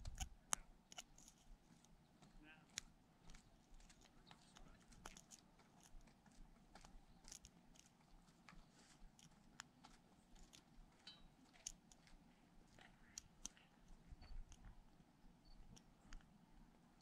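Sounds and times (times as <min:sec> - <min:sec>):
lock pick clicking and scraping: 0:00.0 - 0:01.5.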